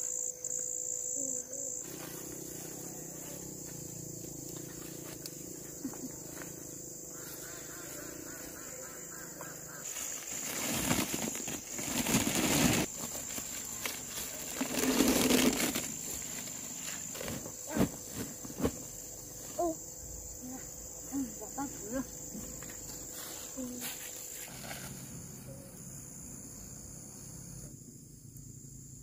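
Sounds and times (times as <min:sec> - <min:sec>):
high insect drone: 0:00.0 - 0:29.0
sack rustling: 0:09.8 - 0:18.8.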